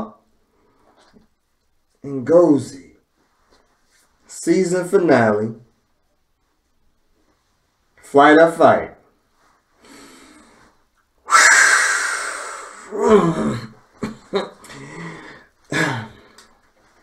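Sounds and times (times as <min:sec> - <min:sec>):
man exhaling heavily: 0:11.3 - 0:13.7
short wordless vocal sounds: 0:11.3 - 0:16.6.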